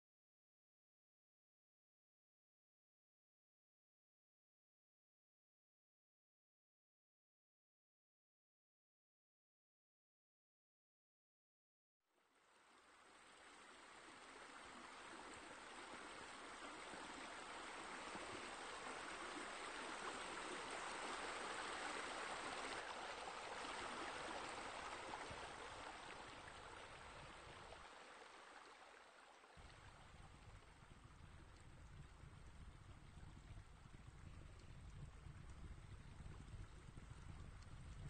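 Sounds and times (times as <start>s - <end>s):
running water rushing: 12.4s - 38.0s.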